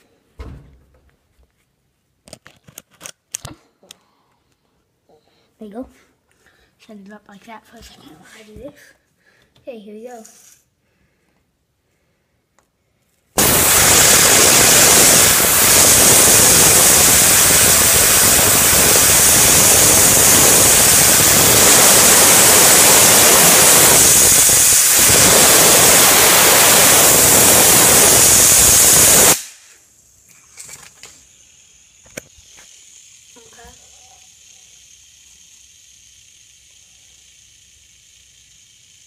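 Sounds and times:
compressed air hissing: 13.3s - 39.0s.

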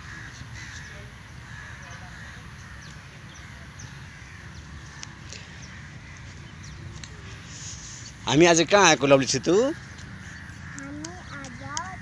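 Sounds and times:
faint bird calls: 0.0s - 12.0s
outdoor background noise: 0.0s - 12.0s
light ticks: 10.7s - 12.0s.

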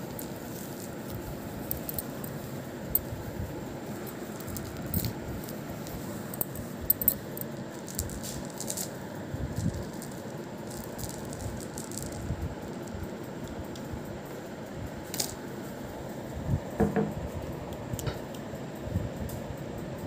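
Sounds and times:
beads clicking and jangling: 0.0s - 14.0s, 14.9s - 15.8s.

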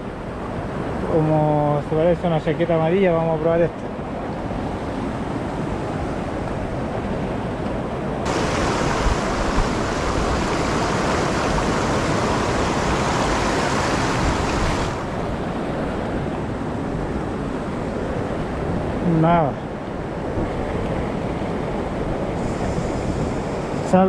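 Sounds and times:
river water rushing over rocks: 8.2s - 17.0s.

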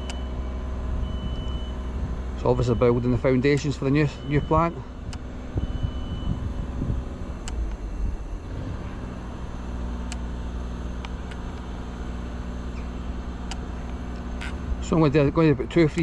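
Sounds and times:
low mechanical hum: 4.4s - 16.0s.

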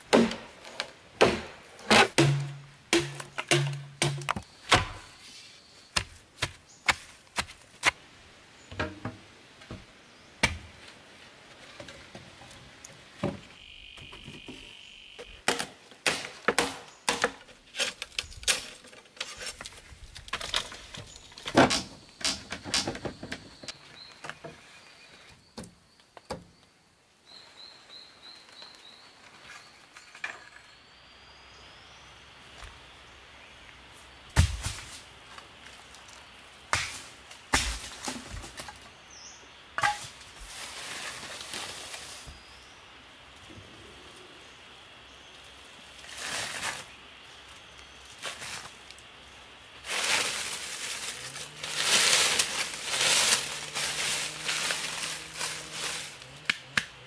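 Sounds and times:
bamboo and wood knocking: 0.0s - 5.2s, 5.9s - 8.0s, 8.7s - 10.9s, 13.2s - 24.6s, 51.7s - 57.0s
insects chirping: 0.0s - 6.8s, 12.6s - 57.0s.

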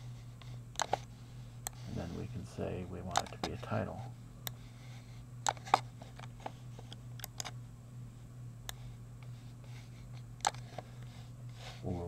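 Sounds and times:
steady low hum: 0.0s - 12.0s
computer mouse clicks: 6.9s - 7.5s, 10.4s - 10.6s.

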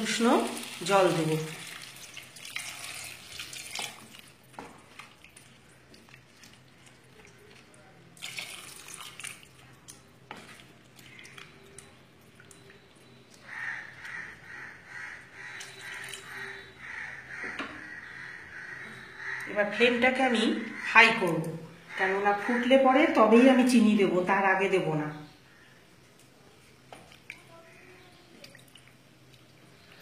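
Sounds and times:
water pouring and splashing: 0.0s - 12.9s, 28.3s - 30.0s
wooden spatula stirring and scraping: 9.3s - 12.2s.

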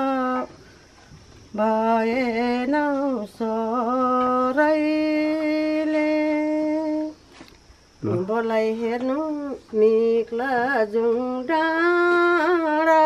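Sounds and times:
elderly woman singing unaccompanied: 0.0s - 0.7s, 1.5s - 7.4s, 8.0s - 13.0s.

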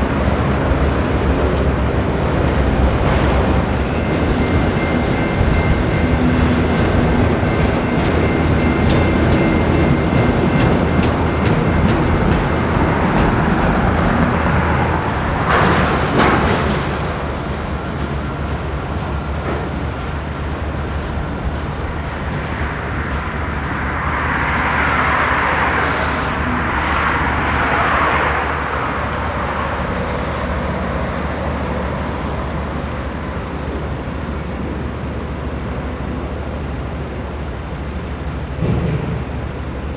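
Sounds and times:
low train rumble: 0.0s - 39.9s
train wheels rattling over rails: 0.0s - 39.9s.

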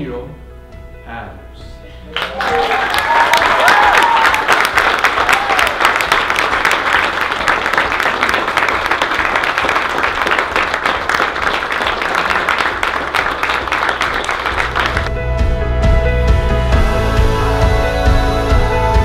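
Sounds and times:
crowd applauding: 2.1s - 15.1s.

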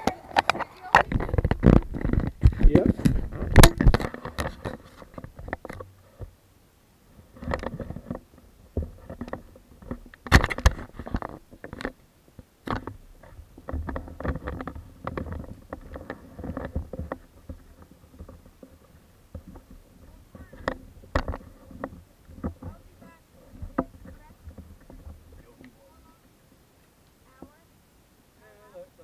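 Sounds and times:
camera handling knocks and scrapes: 0.4s - 5.9s, 8.8s - 12.0s.

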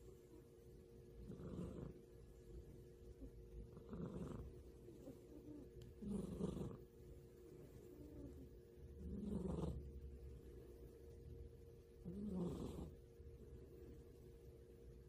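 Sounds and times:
cat snoring softly: 1.2s - 2.1s, 3.2s - 6.9s, 7.8s - 10.0s, 12.0s - 13.1s.

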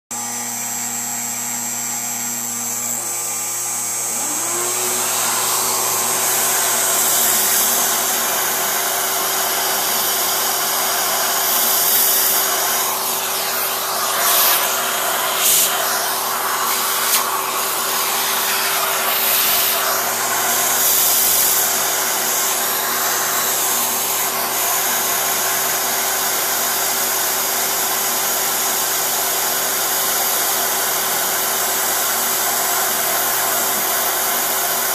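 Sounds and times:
milling spindle whine: 0.6s - 25.2s
end mill cutting plastic: 1.8s - 24.6s
vacuum hose rushing: 4.0s - 25.6s.

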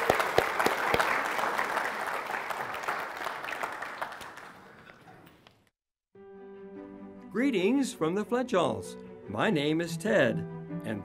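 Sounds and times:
congregation applauding: 0.0s - 5.5s.

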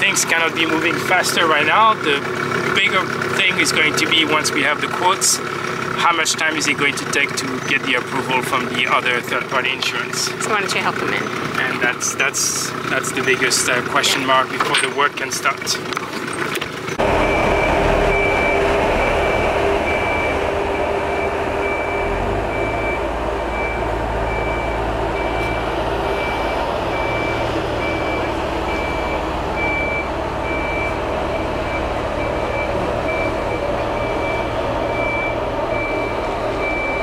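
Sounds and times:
engine rumble: 0.0s - 37.0s
warning beeper: 17.0s - 37.0s.

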